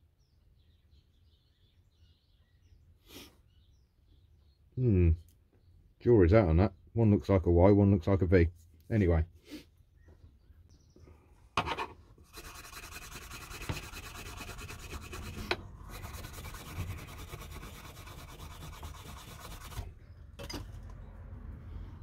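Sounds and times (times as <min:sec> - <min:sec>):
rubbing on steel chisel blade: 0:11.6 - 0:19.9.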